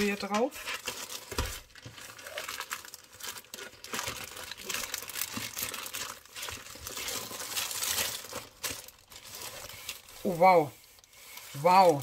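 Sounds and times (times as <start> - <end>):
plastic sleeve crinkling: 0.0 - 12.0.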